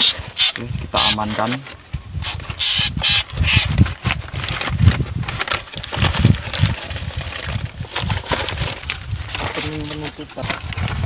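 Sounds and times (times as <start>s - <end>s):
paper rustling: 3.3s - 11.0s.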